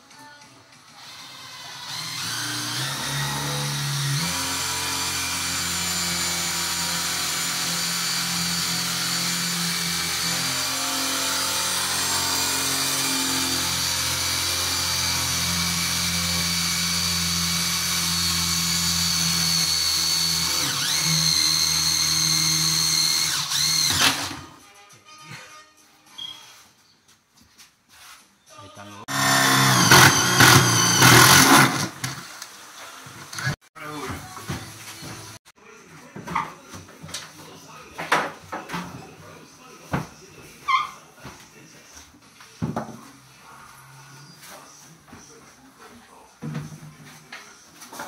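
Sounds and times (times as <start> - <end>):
cordless drill boring into wood: 1.0 - 24.5, 29.1 - 32.5.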